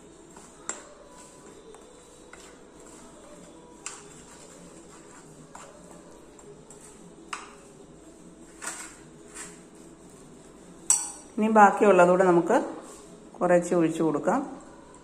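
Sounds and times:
spoon scraping in a bowl: 10.8s - 11.3s
spoon clinking against bowl: 10.9s - 11.3s.

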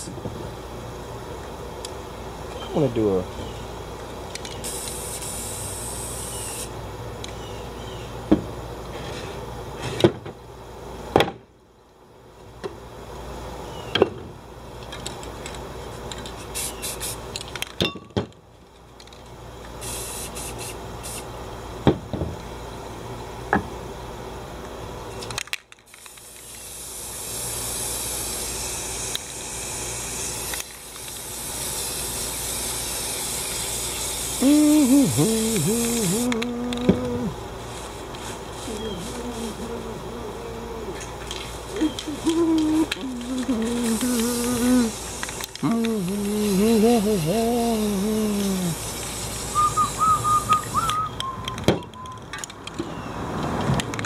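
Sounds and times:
spray paint can hissing: 4.3s - 6.8s, 16.0s - 17.6s, 19.8s - 21.3s, 25.2s - 51.6s.

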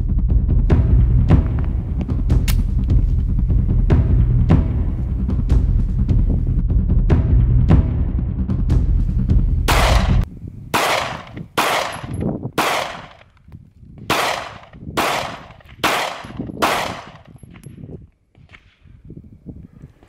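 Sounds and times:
pistol shots with echo: 9.7s - 10.2s, 10.8s - 13.2s, 14.1s - 17.4s.

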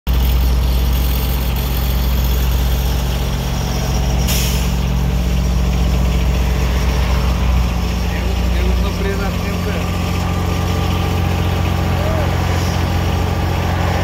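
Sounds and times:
machine engine running: 0.1s - 14.0s
brief hiss: 4.2s - 4.9s.

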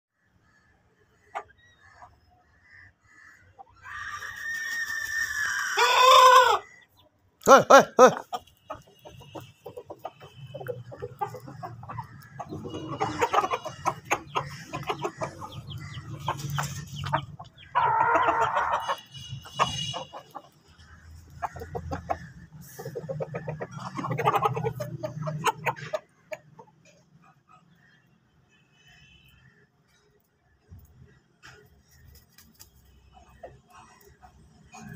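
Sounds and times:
chickens clucking: 1.0s - 2.3s, 5.4s - 28.1s, 30.8s - 34.9s
chicken drawn-out calls: 1.2s - 27.8s.

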